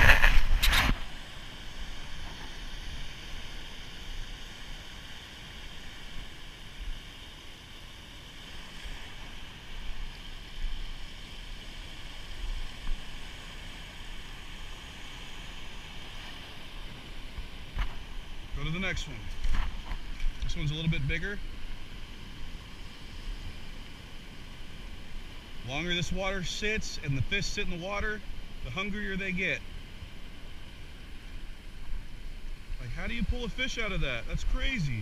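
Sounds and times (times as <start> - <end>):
hand rubbing on camera: 0.0 - 1.1
wind rumble on microphone: 0.0 - 4.2
surf washing over rocks: 0.0 - 35.0.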